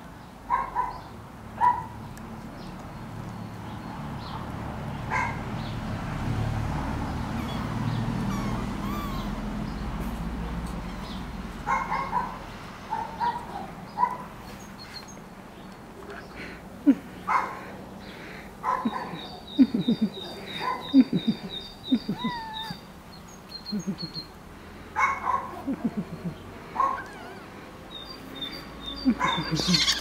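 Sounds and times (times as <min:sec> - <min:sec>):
kittens mewing: 0:07.4 - 0:09.8, 0:20.6 - 0:22.9, 0:25.6 - 0:27.7, 0:29.1 - 0:30.0.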